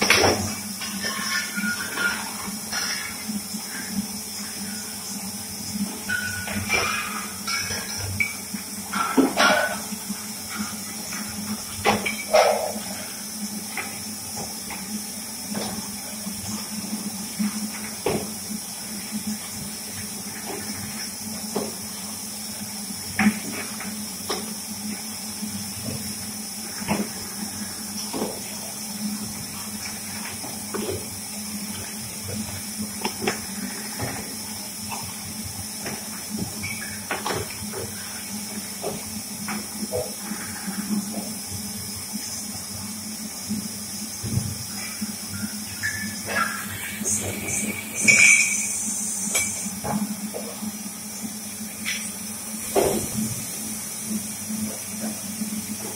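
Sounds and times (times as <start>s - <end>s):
glass bottles clinking: 0.9s - 2.3s, 6.1s - 9.8s, 47.4s - 49.7s
spray nozzles hissing: 46.4s - 49.6s.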